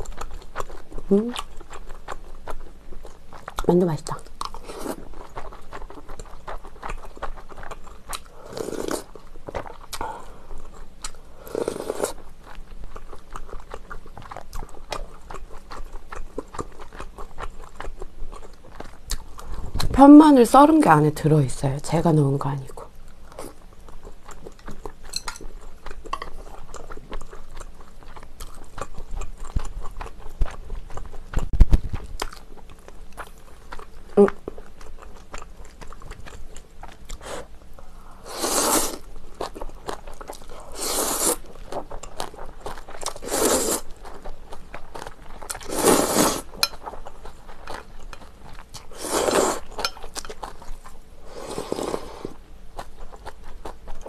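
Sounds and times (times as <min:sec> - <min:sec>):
chewing sounds: 0:00.0 - 0:20.0, 0:22.8 - 0:54.0
noodles being slurped: 0:38.2 - 0:39.0, 0:40.6 - 0:41.4, 0:43.1 - 0:43.9, 0:45.6 - 0:46.5.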